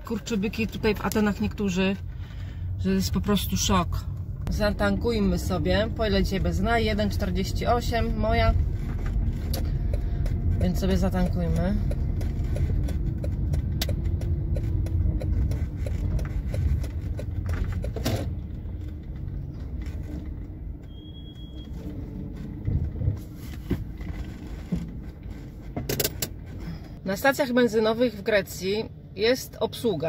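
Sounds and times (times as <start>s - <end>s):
car engine and road rumble: 0.0s - 30.0s
high beep: 20.9s - 21.8s.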